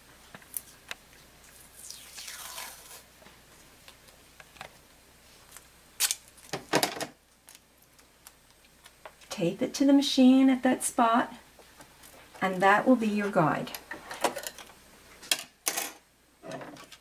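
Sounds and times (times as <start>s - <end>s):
tape ripping: 6.0s - 6.6s.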